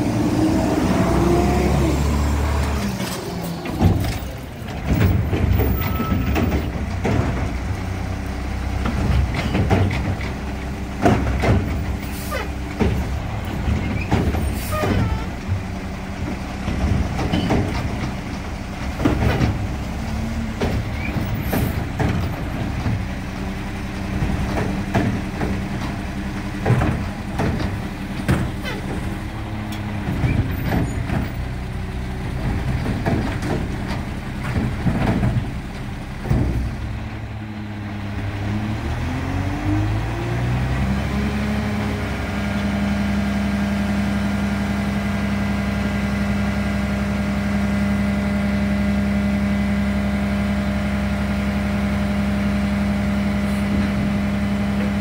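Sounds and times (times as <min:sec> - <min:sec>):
truck engine and hydraulics humming: 0:00.0 - 0:55.0
metal clanks and bangs: 0:02.9 - 0:07.7, 0:08.8 - 0:23.2.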